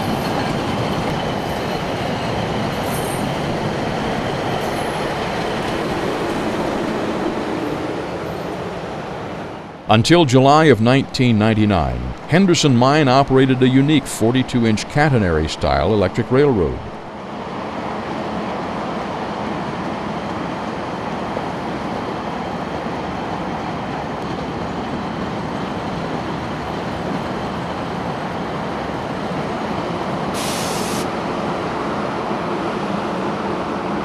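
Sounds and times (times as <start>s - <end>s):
ore train rolling on rails: 0.0s - 34.0s
brief high hiss: 30.4s - 31.1s.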